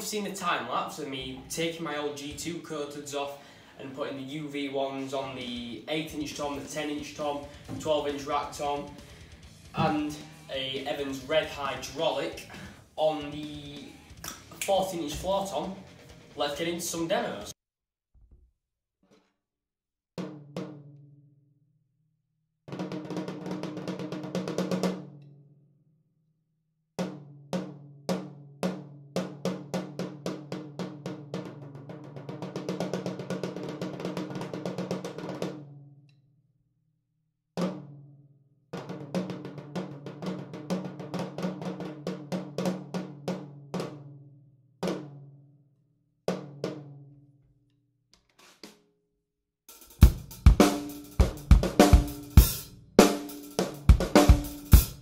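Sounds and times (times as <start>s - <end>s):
drum kit groove: 0.0s - 3.2s, 4.8s - 17.6s, 49.7s - 55.0s.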